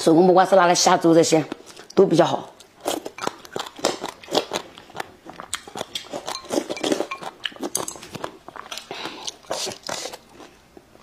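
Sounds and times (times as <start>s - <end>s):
chewing with crunches: 2.6s - 11.0s
chopsticks on bowl: 5.8s - 8.3s.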